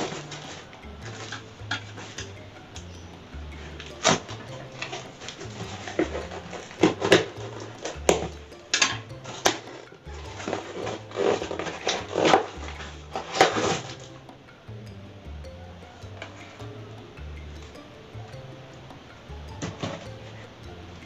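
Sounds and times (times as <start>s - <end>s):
background music with bass: 0.0s - 21.0s.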